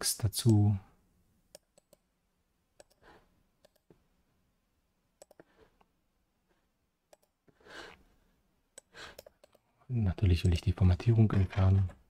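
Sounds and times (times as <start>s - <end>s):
computer mouse clicks: 1.5s - 2.1s, 2.8s - 4.0s, 5.2s - 5.9s, 7.1s - 7.4s, 8.7s - 9.6s.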